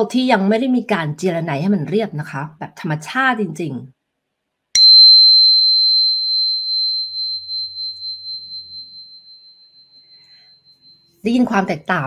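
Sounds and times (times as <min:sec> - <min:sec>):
tuning fork tap on crystal: 0:04.8 - 0:11.0
pure high ringing tone: 0:04.8 - 0:11.8.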